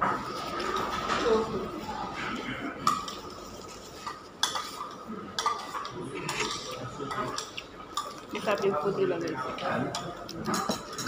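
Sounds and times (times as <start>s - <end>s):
cutlery and plates clinking: 2.8s - 8.7s, 9.8s - 11.0s.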